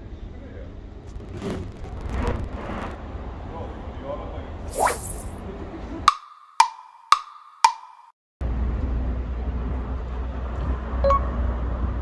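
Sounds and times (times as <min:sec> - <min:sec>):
low outdoor rumble: 0:00.0 - 0:04.7
hollow wood-block knocks: 0:06.1 - 0:08.1.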